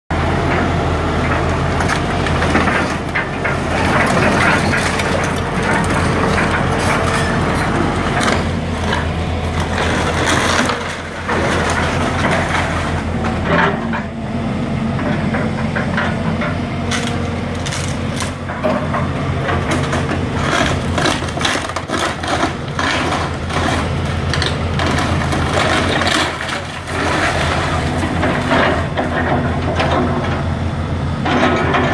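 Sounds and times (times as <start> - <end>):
excavator diesel engine running: 0.1 - 31.9
debris crunching: 1.8 - 13.8, 16.8 - 30.1
timber cracking and splintering: 19.7 - 28.8.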